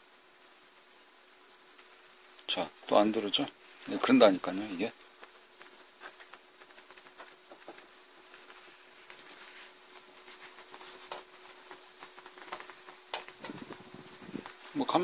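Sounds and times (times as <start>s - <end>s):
faint steady hum: 0.0s - 15.0s
small handling clicks and rubs: 3.5s - 15.0s.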